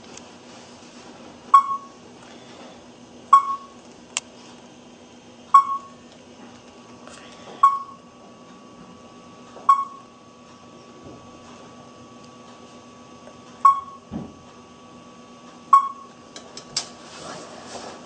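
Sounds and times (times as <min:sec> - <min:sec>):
short beeps: 0:01.5 - 0:01.9, 0:03.3 - 0:03.7, 0:05.6 - 0:05.9, 0:07.6 - 0:08.0, 0:09.7 - 0:10.0, 0:13.6 - 0:14.0, 0:15.7 - 0:16.1.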